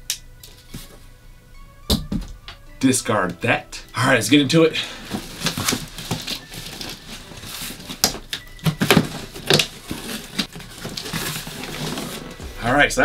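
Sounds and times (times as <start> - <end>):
cardboard crackles: 4.9 - 13.0
cardboard flaps rustling: 5.0 - 13.0.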